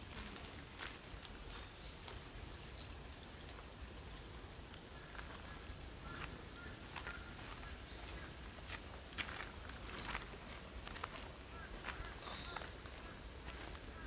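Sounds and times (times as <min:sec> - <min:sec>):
faint bird chirps: 0:05.0 - 0:08.5, 0:11.5 - 0:14.0.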